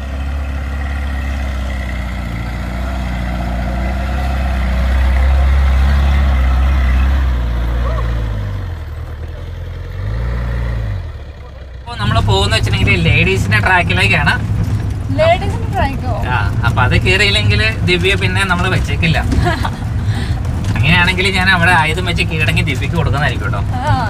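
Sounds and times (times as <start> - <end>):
jeep engine running: 0.0 - 24.0.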